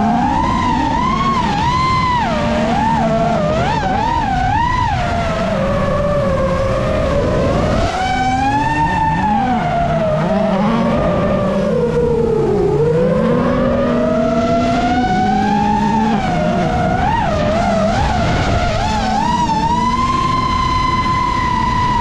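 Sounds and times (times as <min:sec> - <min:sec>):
drone propellers whining: 0:00.0 - 0:22.0
rally car engine revving: 0:00.0 - 0:22.0.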